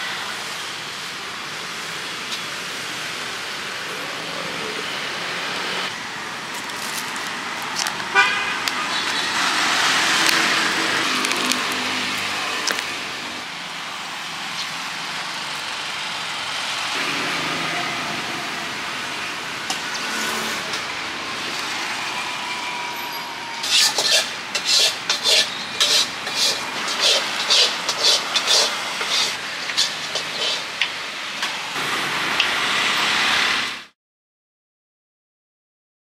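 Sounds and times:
street traffic noise: 0.0s - 34.0s
utensil scraping strokes: 23.6s - 30.9s.

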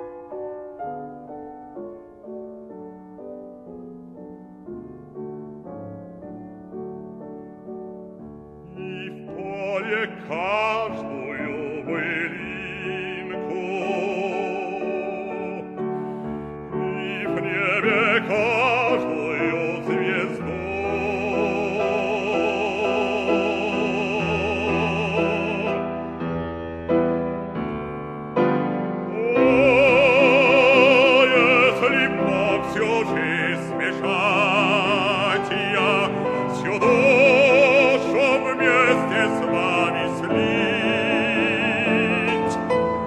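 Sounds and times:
instrumental accompaniment: 0.0s - 43.0s
operatic bass voice singing: 8.7s - 15.8s, 16.8s - 25.9s, 29.1s - 42.7s.

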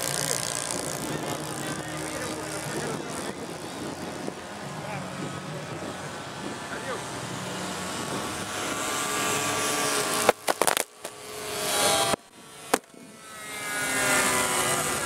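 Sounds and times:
model plane engines droning: 0.0s - 15.0s
pyrotechnic bangs: 10.0s - 11.2s.

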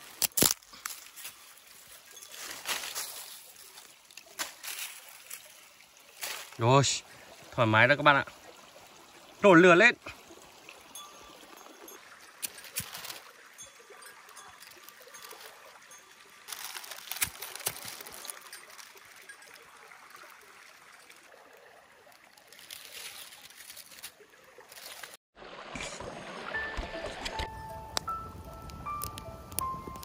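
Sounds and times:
small stream running: 0.0s - 27.4s
small clicks and crackles: 12.4s - 13.3s, 14.0s - 20.4s, 22.1s - 25.2s, 27.4s - 30.0s.

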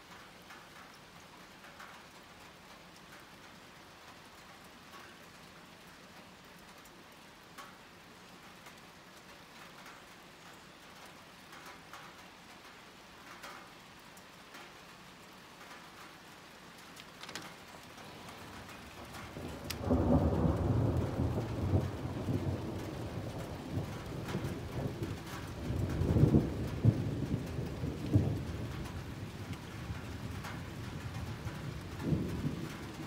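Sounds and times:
light rain pattering: 0.0s - 33.0s
thunder rumble: 18.0s - 33.0s.

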